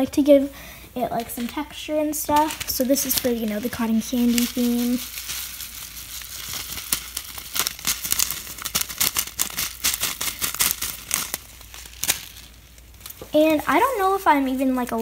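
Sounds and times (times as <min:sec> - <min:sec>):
plastic bag crinkling: 0:01.0 - 0:15.0
foam beads pouring into glass bowl: 0:02.5 - 0:13.1.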